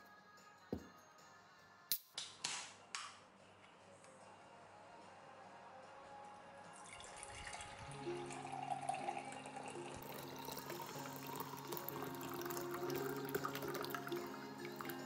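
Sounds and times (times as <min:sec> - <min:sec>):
soft background music: 0:00.0 - 0:15.0
drink pouring into glass: 0:06.7 - 0:15.0.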